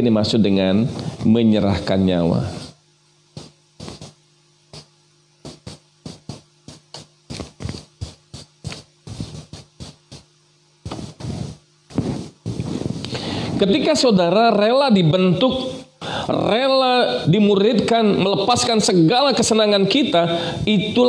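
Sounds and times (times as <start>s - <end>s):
marker pen scratching on paper: 3.4s - 13.8s.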